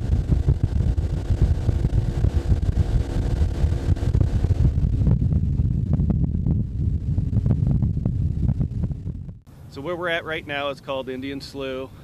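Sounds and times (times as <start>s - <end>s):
boat motor running: 0.0s - 9.5s
wind buffeting microphone: 0.0s - 9.7s.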